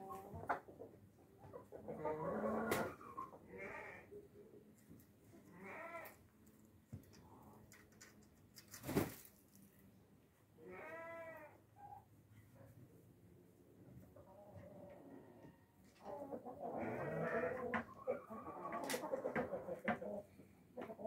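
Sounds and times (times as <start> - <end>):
chickens calling: 0.0 - 4.5, 14.2 - 21.0.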